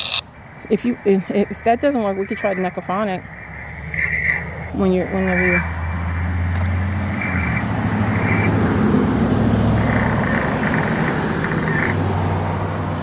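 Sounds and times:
short fragments of radio sound: 0.0s - 0.8s
radio static hiss: 0.0s - 8.5s, 9.8s - 12.1s.

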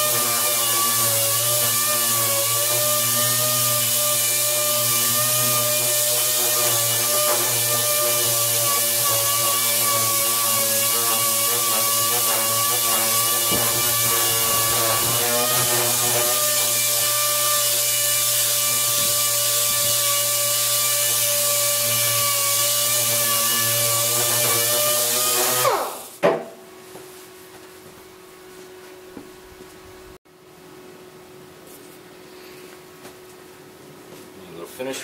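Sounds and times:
air sander on sheet metal: 0.0s - 26.2s.

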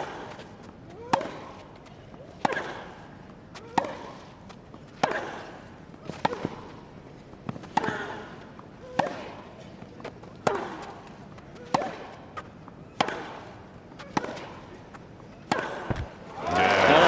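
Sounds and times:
racquets striking tennis ball: 0.0s - 17.0s
player grunting: 16.4s - 17.0s.

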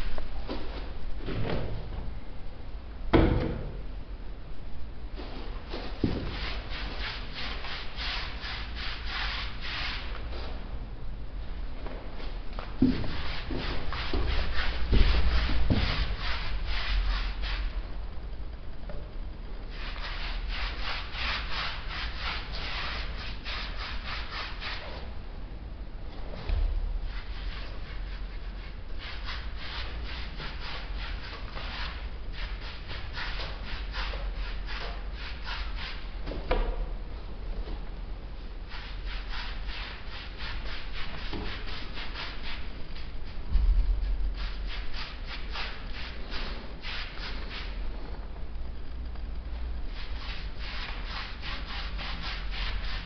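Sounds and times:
paintbrush strokes on wall: 5.2s - 10.5s, 12.2s - 17.8s, 19.7s - 25.1s, 27.0s - 36.1s, 38.7s - 47.8s, 49.9s - 53.0s
paintbrush gritty swishing: 5.8s - 10.1s, 12.9s - 17.7s, 19.7s - 24.9s, 50.0s - 53.0s.

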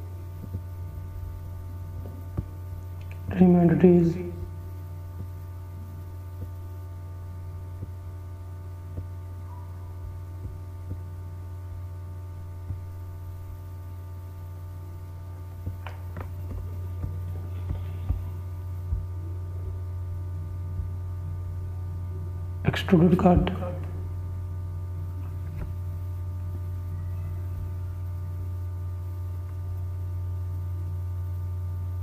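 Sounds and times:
low electrical hum: 0.0s - 32.0s.

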